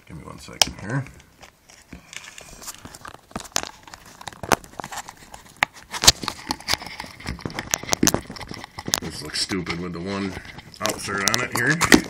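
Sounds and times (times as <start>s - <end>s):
gas mask clicks and knocks: 0.6s - 9.2s.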